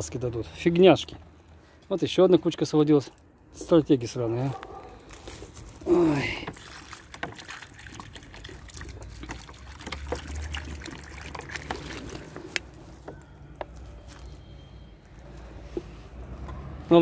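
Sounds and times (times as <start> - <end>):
water pouring into plastic container: 5.9 - 13.1.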